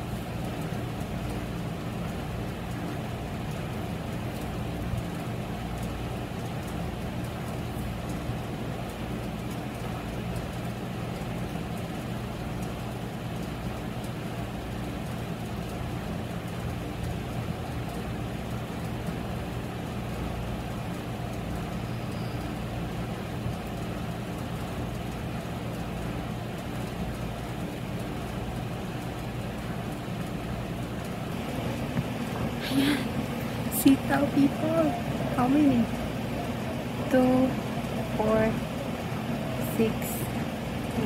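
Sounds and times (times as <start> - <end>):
constant background noise: 0.0 - 41.0
low mechanical hum: 0.0 - 41.0.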